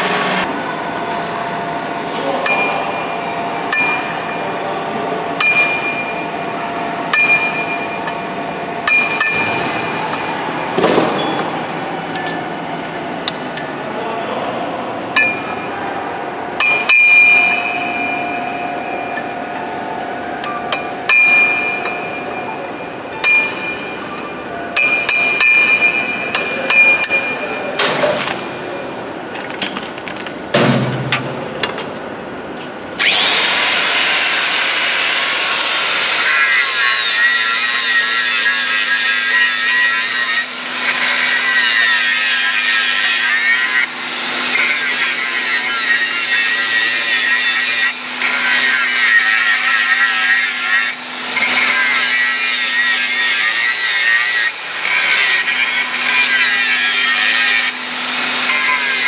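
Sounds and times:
angle grinder grinding metal: 0.0s - 0.5s, 33.0s - 59.0s.

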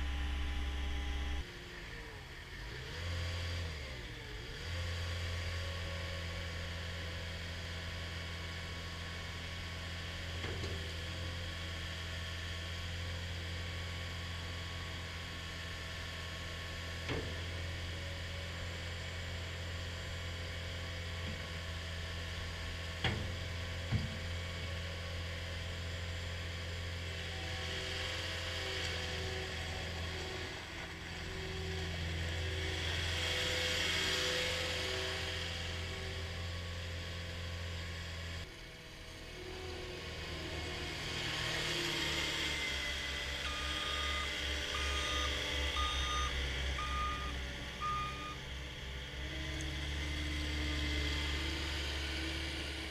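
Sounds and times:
diesel engine running: 0.0s - 52.9s
backup alarm beeping: 43.5s - 48.4s.

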